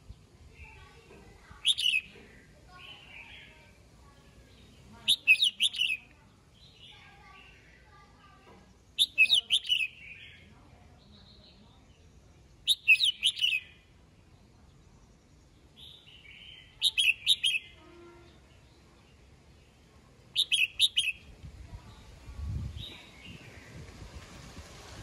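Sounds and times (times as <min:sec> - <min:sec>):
soft bird calls: 0:00.0 - 0:23.9
bulbul singing: 0:01.5 - 0:03.7, 0:04.4 - 0:07.8, 0:09.0 - 0:13.9, 0:15.7 - 0:19.7, 0:20.3 - 0:23.6.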